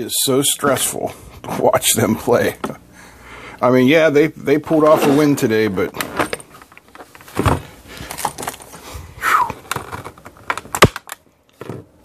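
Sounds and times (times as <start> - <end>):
plastic blister pack crackling: 6.8 - 8.8, 9.4 - 11.2
sharp plastic snap: 10.5 - 11.2.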